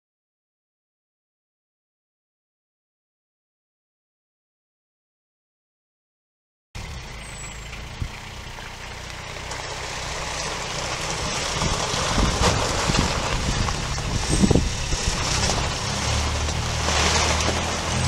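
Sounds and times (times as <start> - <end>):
diesel engine approaching: 6.8 - 18.0.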